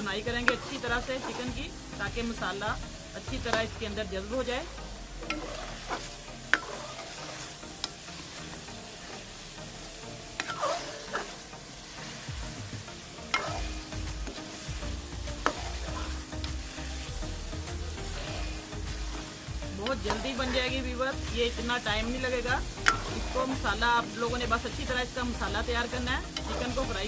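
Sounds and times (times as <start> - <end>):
chicken sizzling in a pot: 0.0 - 27.0
metal spoon scraping a pot: 0.4 - 1.7, 5.2 - 8.3, 10.4 - 11.5, 13.2 - 19.0, 22.6 - 23.7, 26.2 - 27.0.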